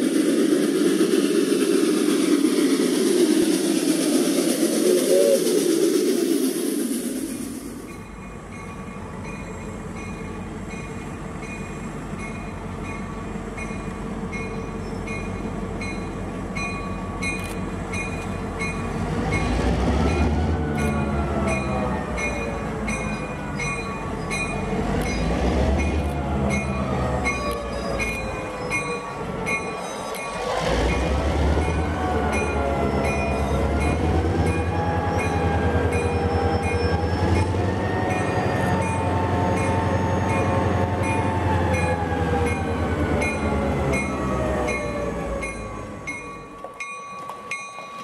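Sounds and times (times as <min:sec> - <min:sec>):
diesel locomotive engine droning: 0:00.0 - 0:48.0
wheels ticking on rails: 0:00.0 - 0:48.0.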